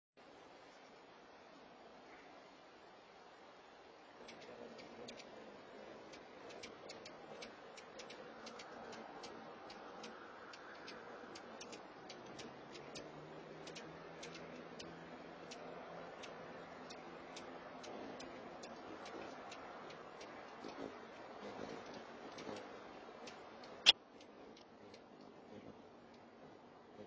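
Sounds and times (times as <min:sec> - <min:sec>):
faint low hum: 0:00.2 - 0:27.0
steady low hiss: 0:00.2 - 0:27.0
sharp ticking: 0:04.2 - 0:05.3, 0:06.0 - 0:21.3, 0:22.3 - 0:25.1.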